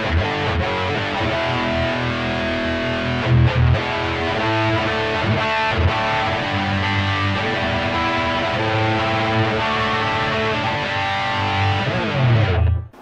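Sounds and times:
distorted electric guitar lead: 0.0s - 13.0s.

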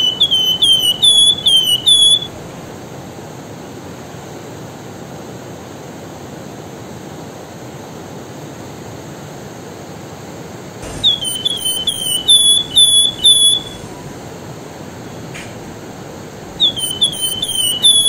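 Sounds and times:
bird singing whistled notes: 0.0s - 2.5s, 10.8s - 14.4s, 15.0s - 18.0s.

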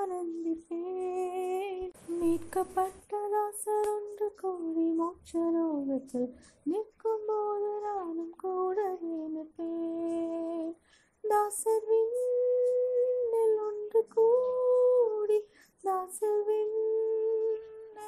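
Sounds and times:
woman singing a hymn: 0.0s - 18.0s
singer breathing: 6.3s - 6.6s, 10.8s - 11.2s, 15.5s - 15.8s.

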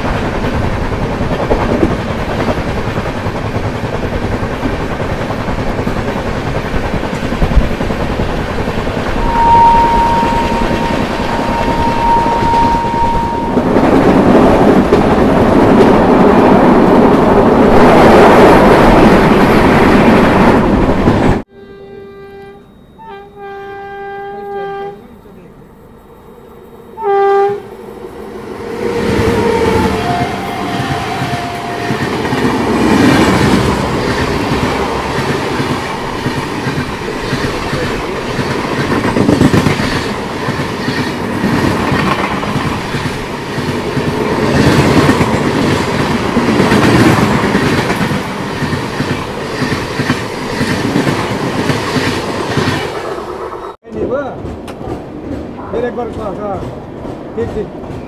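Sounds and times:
passenger train passing: 0.0s - 58.0s
locomotive horn blast: 9.2s - 14.1s, 21.5s - 25.2s, 27.0s - 27.7s, 29.3s - 32.1s.

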